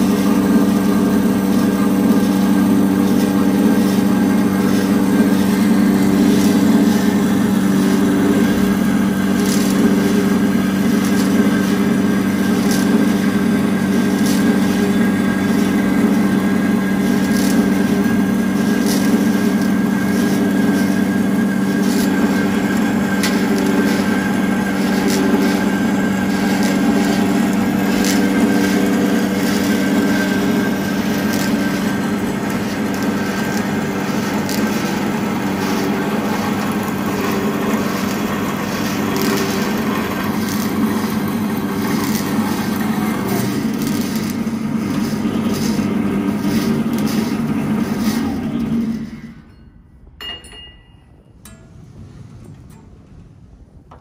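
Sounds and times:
band saw cutting steel: 0:00.0 - 0:49.6.

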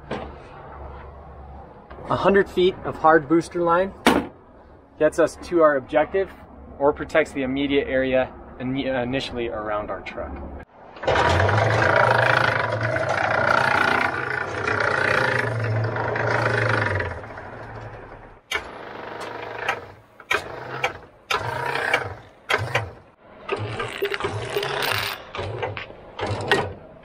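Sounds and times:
hose reel mechanical hum: 0:11.0 - 0:26.9.

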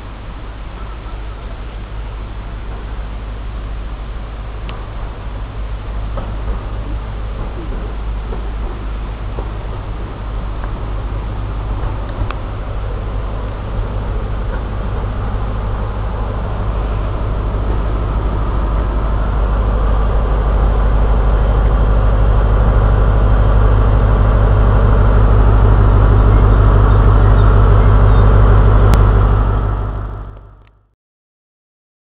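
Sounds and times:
train diesel engine droning: 0:00.0 - 0:30.8.

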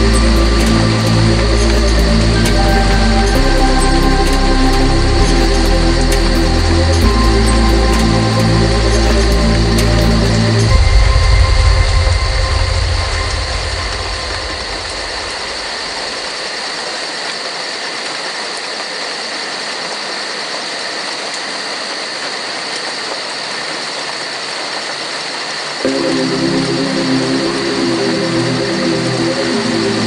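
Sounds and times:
deep bass of song: 0:00.0 - 0:16.1, 0:25.9 - 0:30.0
steady rain hiss: 0:00.0 - 0:30.0.

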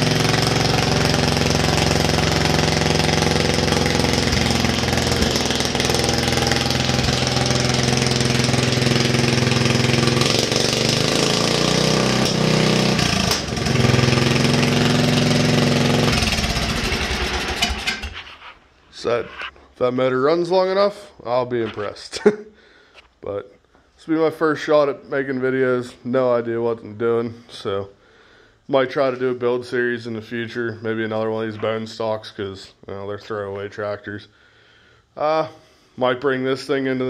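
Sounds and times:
lawn tractor engine running: 0:00.0 - 0:18.5.

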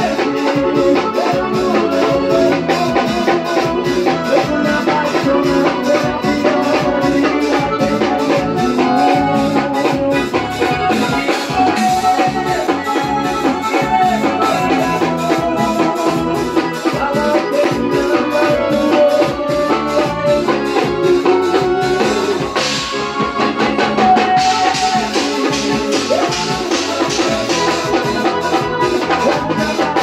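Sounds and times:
accordion melody: 0:00.0 - 0:30.0
drum kit and percussion beat: 0:00.0 - 0:30.0.

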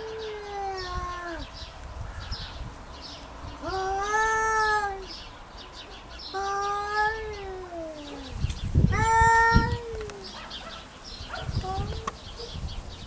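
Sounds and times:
cat yowling: 0:00.0 - 0:01.5, 0:03.6 - 0:05.1, 0:06.3 - 0:10.5.

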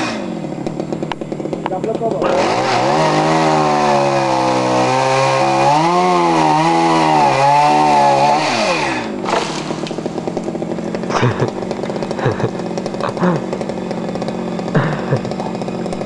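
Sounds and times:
chainsaw revving and cutting wood: 0:00.0 - 0:16.0.

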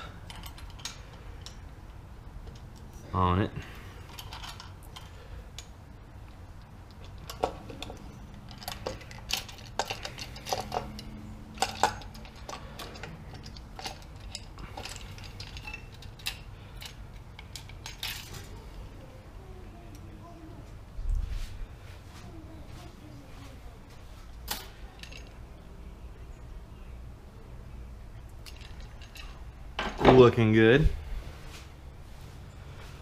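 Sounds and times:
metallic clinks and clicks: 0:00.0 - 0:02.9, 0:06.6 - 0:18.8, 0:24.4 - 0:25.4
faint low hum: 0:00.0 - 0:33.0.

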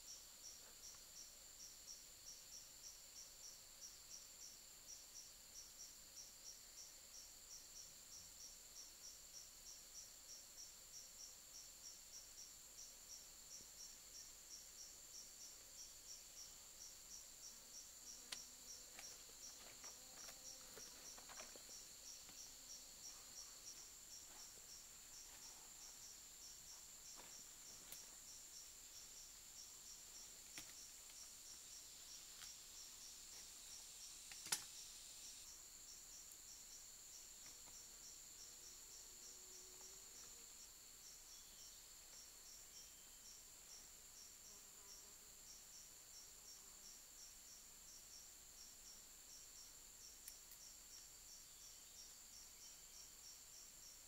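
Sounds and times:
faint forest background: 0:00.0 - 0:54.0
insect pulsing call: 0:00.1 - 0:54.0
faint clicks: 0:34.3 - 0:34.7
sharp snap: 0:34.3 - 0:34.7.

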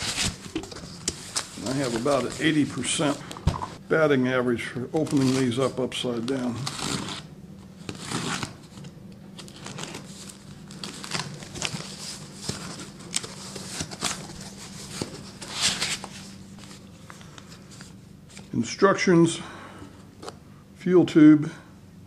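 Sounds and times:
tape scraping and tearing: 0:06.4 - 0:08.8.

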